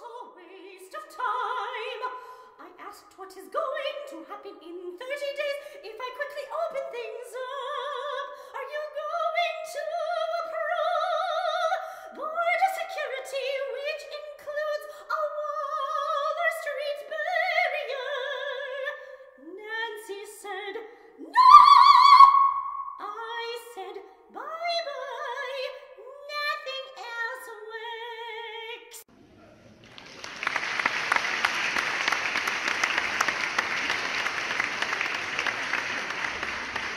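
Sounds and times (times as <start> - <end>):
person singing operatically: 21.2 - 28.6.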